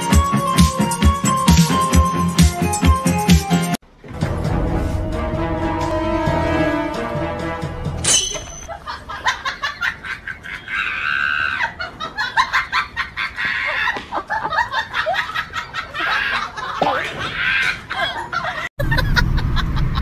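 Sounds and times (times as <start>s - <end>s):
background music: 0.0s - 8.7s.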